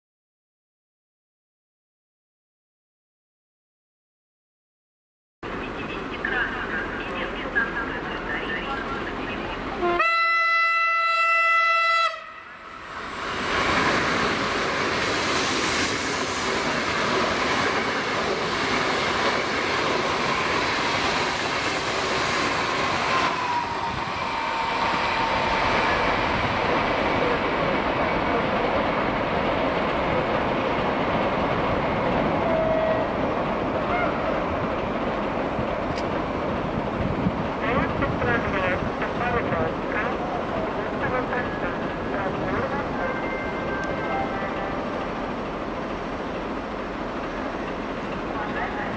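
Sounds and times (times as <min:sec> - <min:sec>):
train horn blast: 0:09.8 - 0:12.6, 0:32.4 - 0:33.2, 0:33.8 - 0:34.4
train rushing past: 0:12.0 - 0:48.9.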